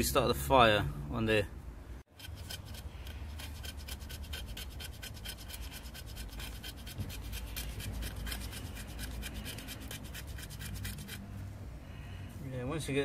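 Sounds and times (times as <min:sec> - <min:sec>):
knife scraping wood: 0:02.1 - 0:11.3.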